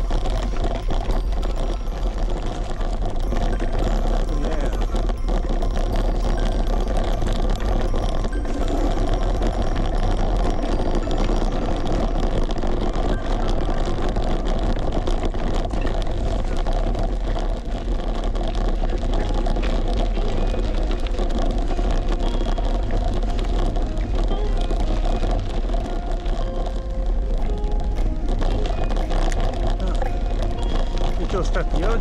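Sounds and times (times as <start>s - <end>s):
bicycle rolling rumble: 0.0s - 32.0s
wind rushing over microphone: 0.0s - 32.0s.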